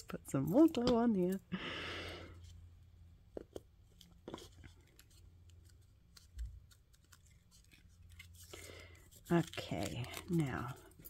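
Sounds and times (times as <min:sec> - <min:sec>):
paper clicks and rustles: 0:03.4 - 0:11.0.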